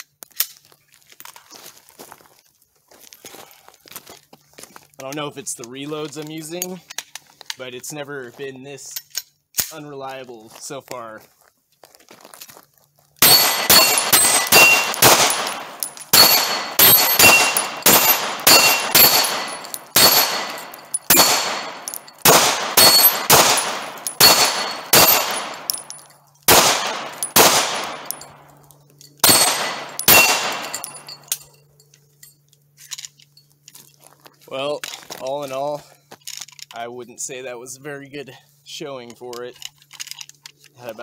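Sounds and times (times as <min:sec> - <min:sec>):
rapid pistol shots: 0:13.2 - 0:25.9, 0:26.5 - 0:28.3, 0:29.2 - 0:31.0
steel target plate ringing: 0:13.2 - 0:31.7.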